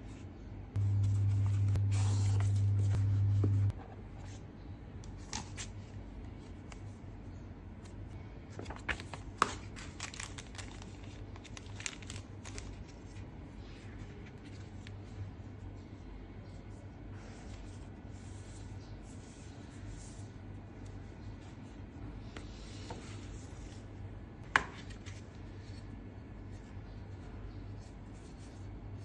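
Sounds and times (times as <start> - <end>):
steady low hum: 0.0 - 29.0
packaging rustling and crinkling: 8.5 - 13.3.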